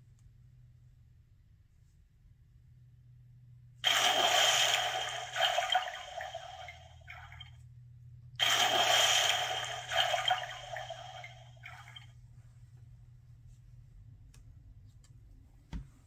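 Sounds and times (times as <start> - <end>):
rushing water from small speaker: 3.8 - 7.4, 8.4 - 12.0.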